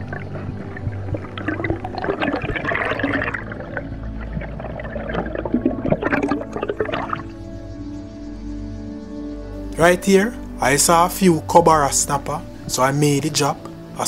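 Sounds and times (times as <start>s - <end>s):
water gurgling and bubbling underwater: 0.0s - 8.2s.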